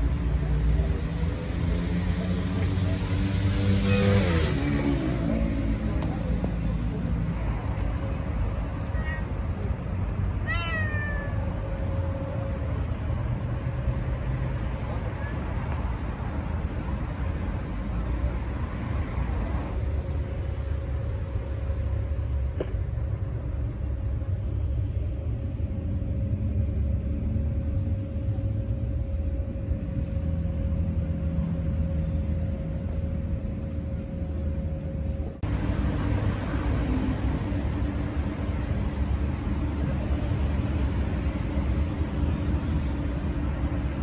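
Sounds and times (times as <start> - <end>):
traffic and wind rumble: 0.0 - 44.0.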